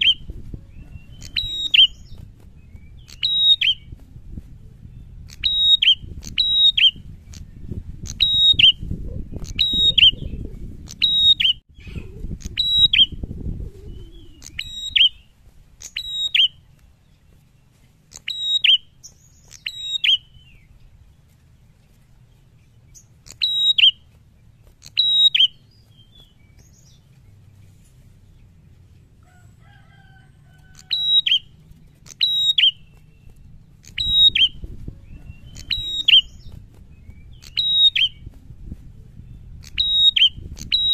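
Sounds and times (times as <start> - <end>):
bird chirping: 0.0 - 4.0, 4.9 - 13.2, 13.9 - 29.8, 30.5 - 38.4, 39.2 - 40.9
low rumble: 3.8 - 6.3, 32.8 - 37.5.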